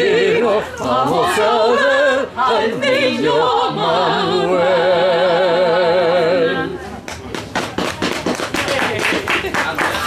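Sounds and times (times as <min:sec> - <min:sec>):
operatic voices singing a cappella: 0:00.0 - 0:06.8.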